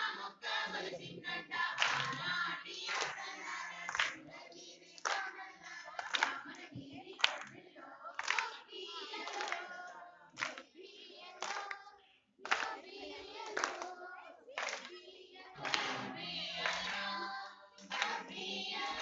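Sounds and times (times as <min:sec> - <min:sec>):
women singing together: 0:00.0 - 0:19.0
hands clapping in unison: 0:01.8 - 0:04.3, 0:04.9 - 0:10.7, 0:11.4 - 0:14.0, 0:14.6 - 0:15.0, 0:15.6 - 0:19.0.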